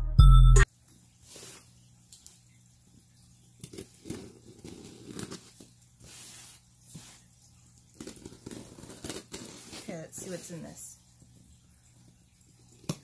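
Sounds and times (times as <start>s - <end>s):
packaging tearing and crinkling: 8.0s - 9.9s.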